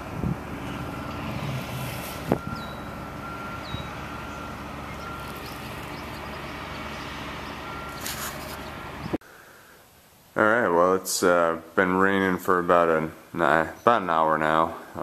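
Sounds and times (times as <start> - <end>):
trucks passing: 0.0 - 9.2
road traffic rumble: 0.0 - 9.8
short high chirps: 2.4 - 6.3.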